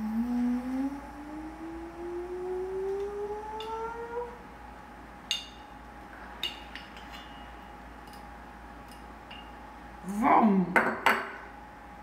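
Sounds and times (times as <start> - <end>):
person humming rising note: 0.0 - 4.4.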